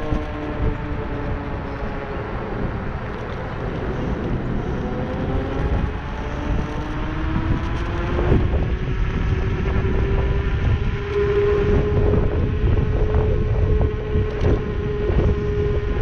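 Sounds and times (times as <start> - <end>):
scooter motor whining: 0.0 - 16.0
wind on microphone: 0.0 - 16.0.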